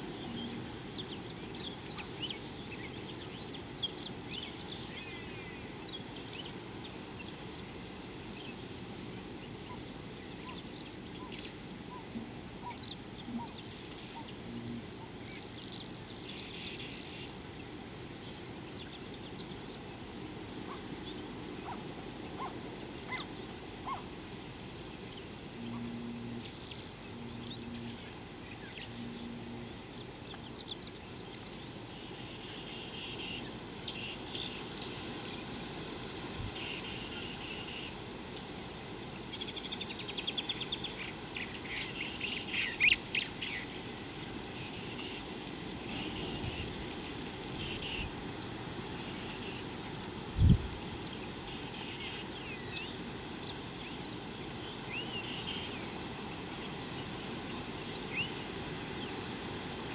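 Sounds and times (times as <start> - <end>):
birds chirping and trilling: 0.0 - 20.0, 20.6 - 24.1, 25.0 - 35.5, 39.3 - 43.9, 47.6 - 48.2, 51.0 - 59.3
short low bird calls: 9.6 - 15.5.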